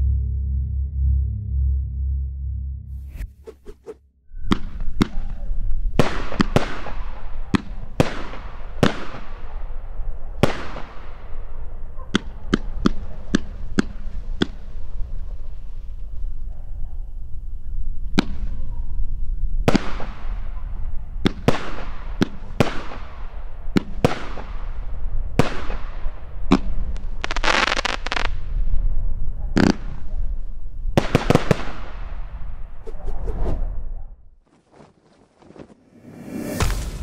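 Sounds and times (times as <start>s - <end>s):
firework bangs: 5.9s - 9.8s, 10.4s - 11.6s, 21.2s - 28.4s, 36.2s - 37.0s
firework crackling: 25.4s - 28.5s, 36.2s - 37.0s.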